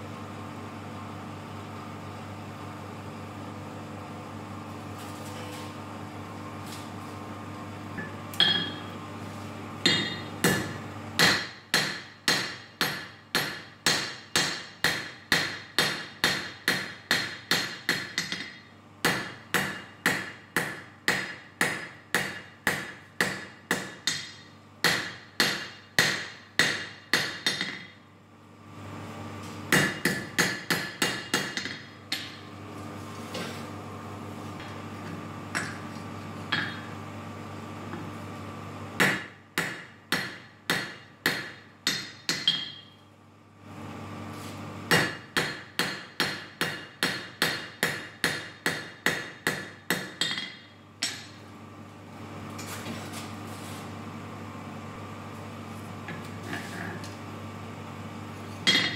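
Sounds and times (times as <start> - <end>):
steady low hum: 0.0 - 58.9
hammer ringing on anvil: 8.0 - 8.9, 9.9 - 15.0, 41.9 - 43.0, 58.7 - 58.9.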